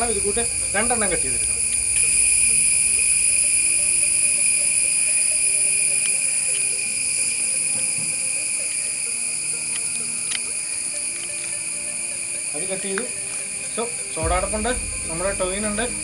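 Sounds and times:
insects droning: 0:00.0 - 0:16.0
handling clicks: 0:09.7 - 0:10.5.

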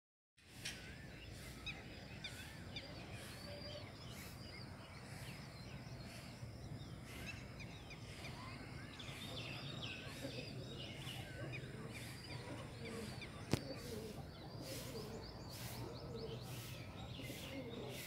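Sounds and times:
small birds chirping and whistling: 0:00.4 - 0:18.0.

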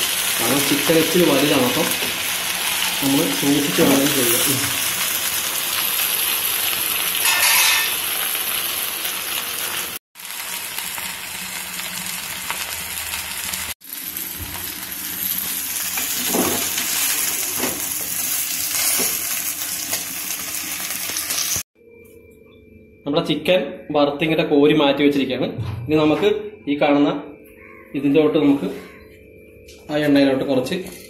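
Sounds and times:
chicken sizzling in pan: 0:00.0 - 0:21.6
steel spatula scraping and knocking: 0:07.2 - 0:08.0.

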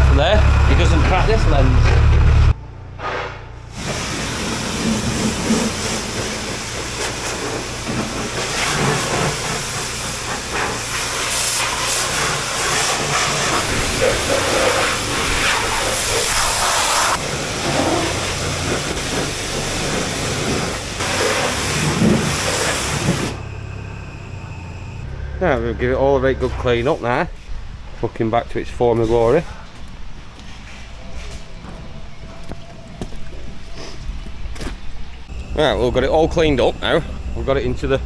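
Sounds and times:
pressure washer spraying: 0:03.7 - 0:23.5.

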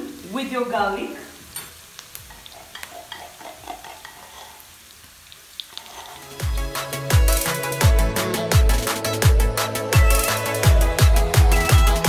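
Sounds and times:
electronic music: 0:06.4 - 0:12.0
deep kick drum: 0:07.2 - 0:12.0.

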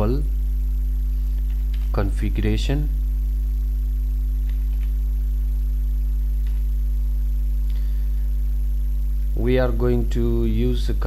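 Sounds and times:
electrical mains hum: 0:00.0 - 0:11.0
keyboard clicks: 0:01.3 - 0:02.0.

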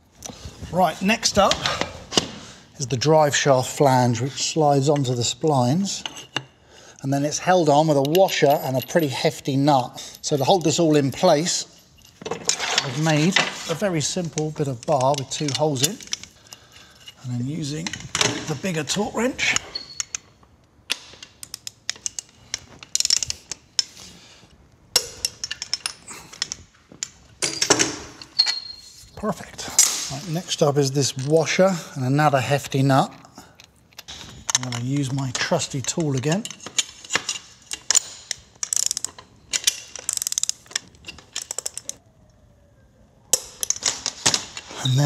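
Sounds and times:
metal clinks: 0:19.3 - 0:23.9
ratcheting wrench clicking: 0:35.9 - 0:42.0.

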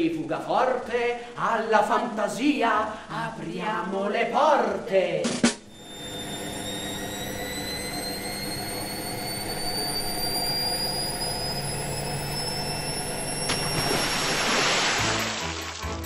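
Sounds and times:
steady hum: 0:00.0 - 0:15.5
washing machine motor whine: 0:05.6 - 0:15.6.

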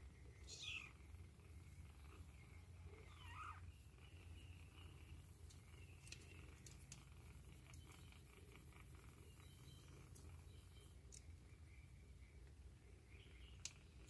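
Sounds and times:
low steady hum: 0:00.0 - 0:14.0
kitten mewing: 0:00.5 - 0:01.0, 0:03.0 - 0:03.6
faint ticks: 0:04.7 - 0:11.5, 0:13.5 - 0:14.0.

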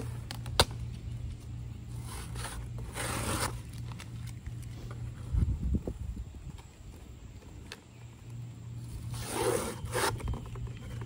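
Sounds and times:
packing tape ripping off a box: 0:02.0 - 0:04.4.

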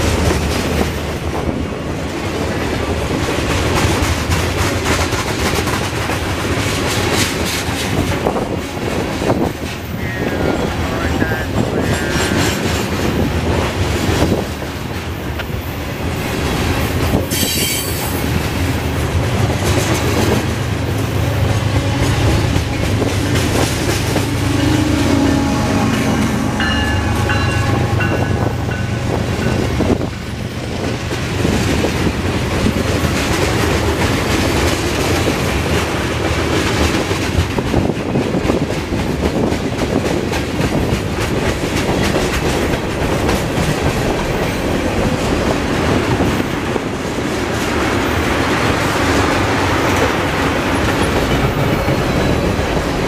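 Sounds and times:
clickety-clack over rail joints: 0:00.0 - 0:24.6, 0:26.6 - 0:53.0
freight train wheels rumbling: 0:00.0 - 0:53.0
wheel squeals: 0:17.3 - 0:18.2.

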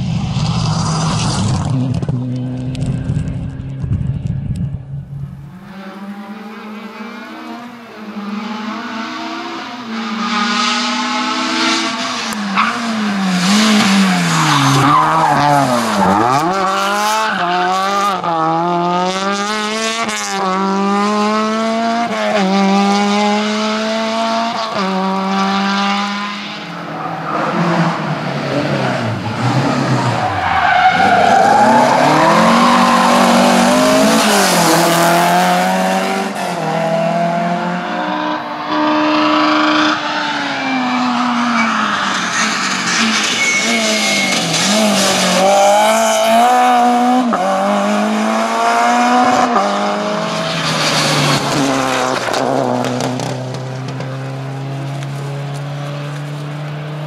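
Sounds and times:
rally car engine revving: 0:00.0 - 0:57.0.

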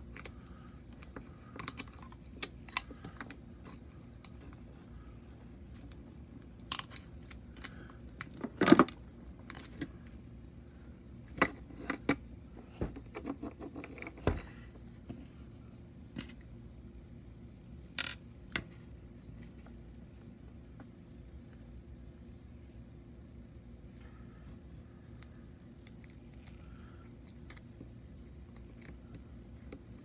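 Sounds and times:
plastic toy clicking and knocking: 0:01.0 - 0:04.4.

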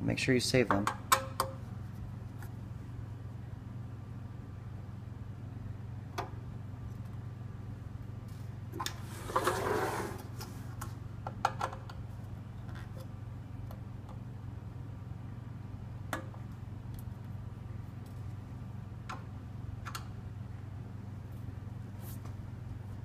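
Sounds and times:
steady low hum: 0:00.0 - 0:23.0
scraping rustle: 0:09.0 - 0:10.7.

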